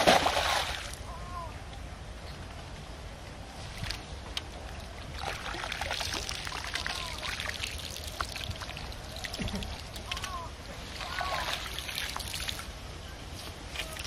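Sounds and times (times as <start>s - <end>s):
water pouring from a net: 10.9s - 12.7s.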